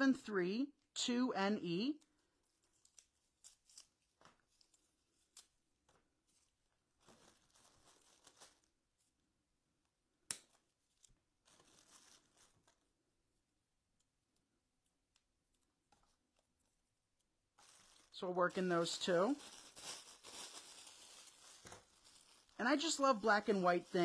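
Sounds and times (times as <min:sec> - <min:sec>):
faint rustling and small clicks: 0:01.9 - 0:09.2, 0:09.8 - 0:13.0, 0:13.9 - 0:18.2.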